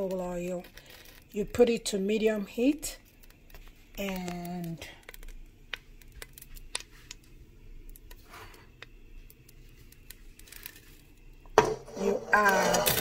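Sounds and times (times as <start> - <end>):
oil ticking and popping: 2.9 - 11.6.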